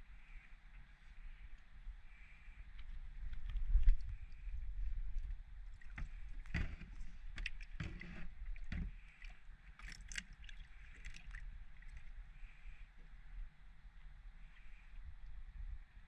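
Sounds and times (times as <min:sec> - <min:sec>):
wind rumble on microphone: 0:01.1 - 0:09.4, 0:10.2 - 0:16.0
water sloshing: 0:05.6 - 0:12.3.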